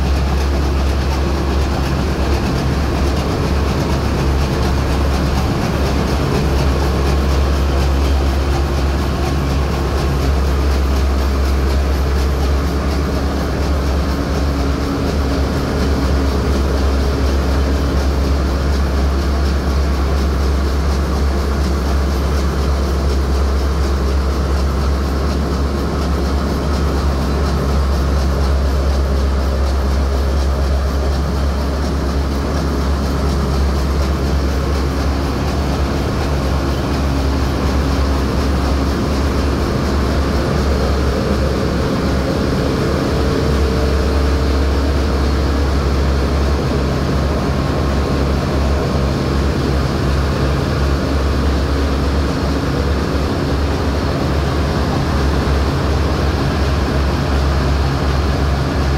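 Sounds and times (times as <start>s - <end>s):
ship engine room diesel drone: 0.0s - 58.9s.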